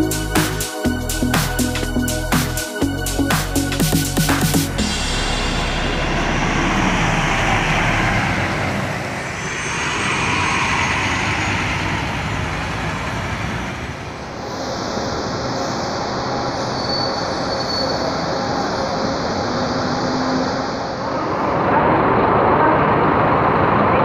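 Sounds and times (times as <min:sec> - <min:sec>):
thin high whine: 0:04.8 - 0:13.5
buses driving past: 0:04.8 - 0:24.0.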